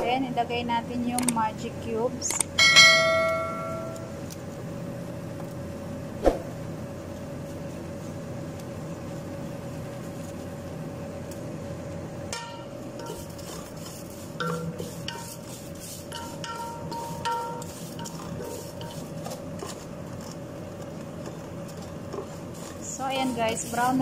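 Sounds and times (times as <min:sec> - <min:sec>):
utensil clinking against pan: 0:14.4 - 0:15.4.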